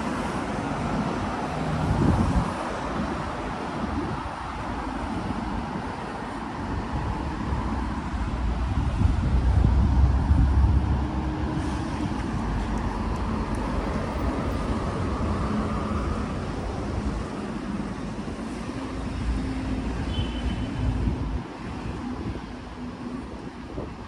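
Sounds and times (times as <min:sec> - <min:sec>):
city road traffic rumble: 0:00.0 - 0:24.0.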